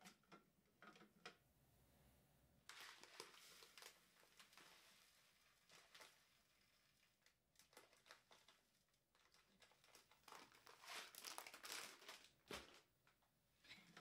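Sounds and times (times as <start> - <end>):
rice packet crinkling: 2.7 - 12.9.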